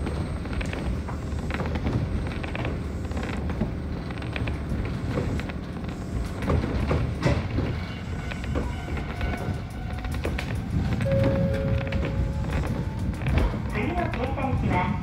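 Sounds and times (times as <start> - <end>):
creaks and clicks: 0.0 - 15.0
train low rumble: 0.0 - 15.0.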